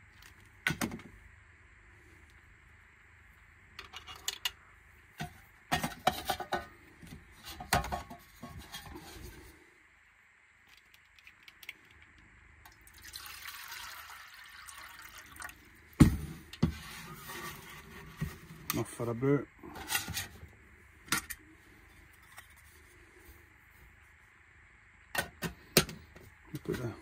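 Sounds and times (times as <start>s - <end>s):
water pouring into metal cup: 12.7s - 15.7s.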